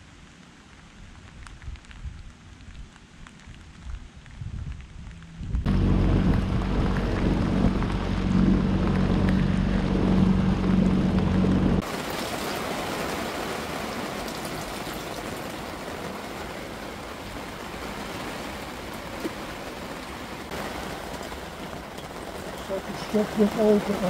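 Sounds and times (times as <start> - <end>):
rain on canvas: 0.0 - 24.0
water rushing at hull: 5.0 - 24.0
outboard motor running: 5.7 - 11.8.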